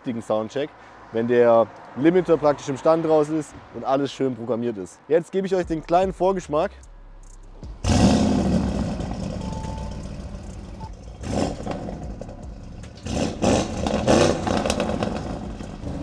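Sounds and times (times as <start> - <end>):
car engine revving: 6.9 - 16.0.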